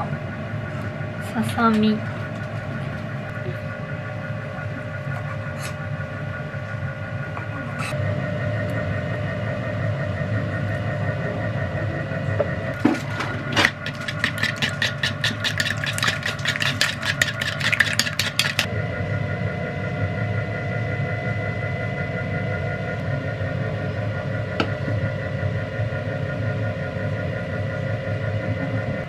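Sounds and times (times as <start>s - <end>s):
steady machine hum: 0.0s - 29.0s
wire whisk beating eggs: 12.8s - 18.7s.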